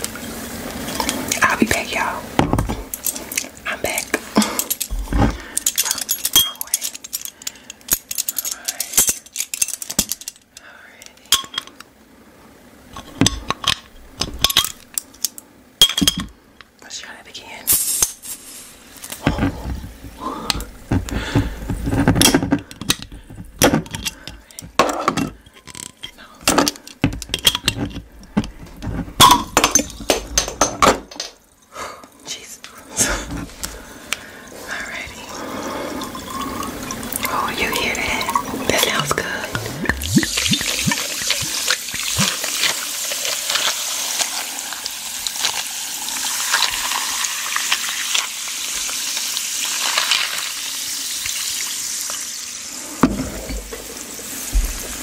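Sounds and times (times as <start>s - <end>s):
glass clinking: 5.6s - 7.2s, 11.3s - 11.7s, 15.8s - 16.3s, 29.2s - 31.4s, 35.9s - 42.7s.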